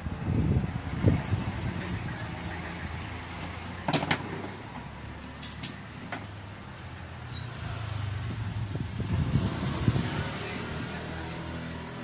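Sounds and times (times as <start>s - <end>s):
fan parts clicking and knocking: 3.4s - 6.5s.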